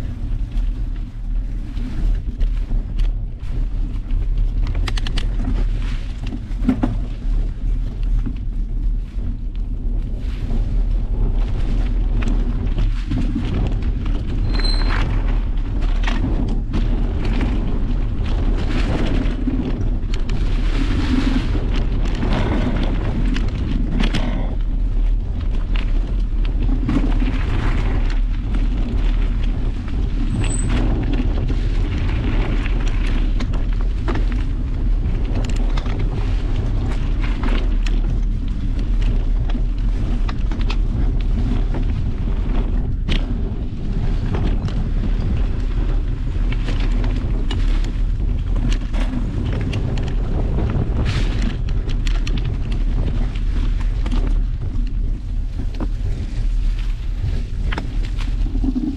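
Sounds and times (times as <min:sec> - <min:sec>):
bike rattling over bumps: 0:00.0 - 0:58.9
bike tyres on dirt: 0:00.0 - 0:58.9
wind noise on microphone: 0:00.0 - 0:58.9.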